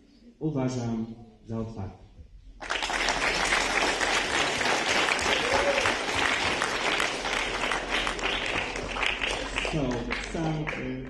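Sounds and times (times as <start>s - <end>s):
audience applauding: 2.6s - 11.0s.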